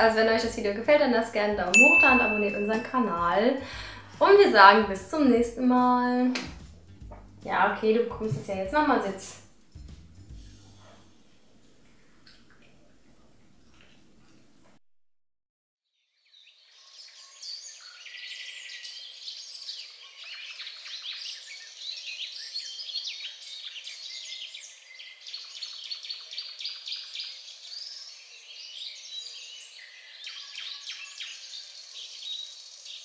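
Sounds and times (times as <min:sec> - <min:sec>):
songbirds chirping and singing: 0:16.2 - 0:33.0.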